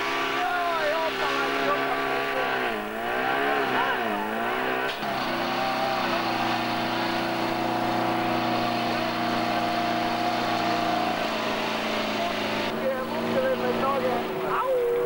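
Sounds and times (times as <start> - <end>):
fire pump engine running: 4.0 - 15.0.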